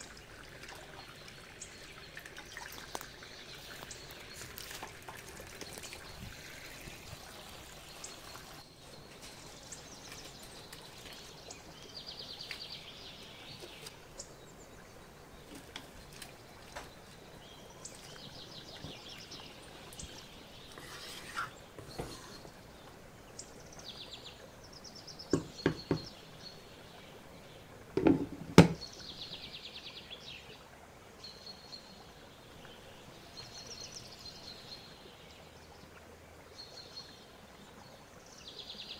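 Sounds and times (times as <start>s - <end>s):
sharp knocks: 25.4s - 26.1s, 28.0s - 28.8s.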